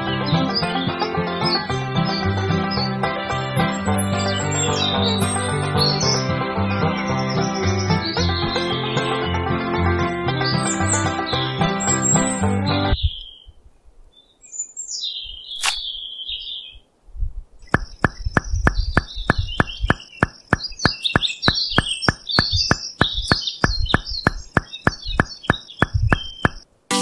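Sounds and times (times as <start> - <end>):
small birds chirping: 3.6 - 9.3, 10.4 - 16.9, 17.6 - 26.7
regular ticking: 17.6 - 26.6.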